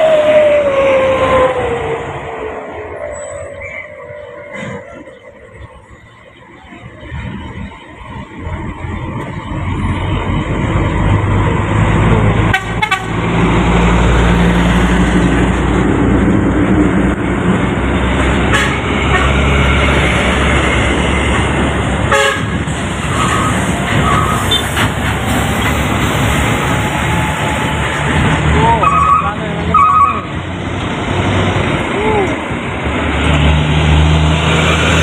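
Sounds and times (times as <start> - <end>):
diesel truck engine drone: 0.0 - 35.0
truck horn toots: 12.4 - 13.4, 18.4 - 19.5, 22.0 - 24.9, 28.8 - 30.3.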